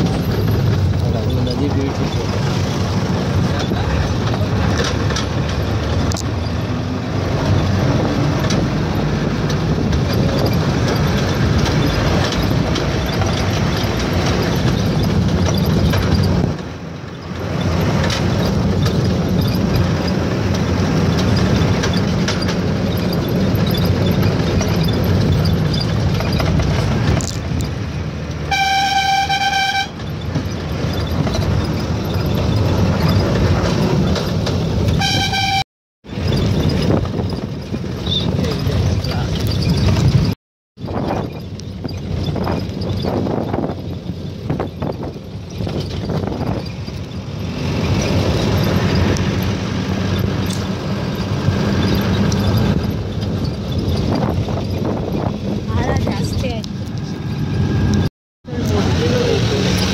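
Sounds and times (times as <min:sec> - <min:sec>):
road vehicle running noise: 0:00.0 - 0:59.9
vehicle horn: 0:28.5 - 0:30.0, 0:35.0 - 0:35.6.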